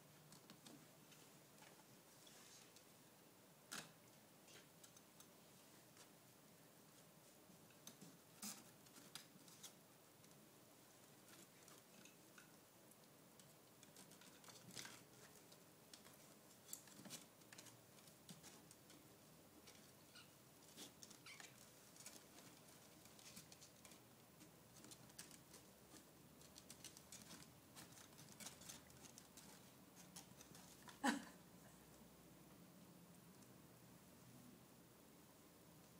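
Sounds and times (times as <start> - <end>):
kittens scratching fabric basket: 3.7 - 31.1.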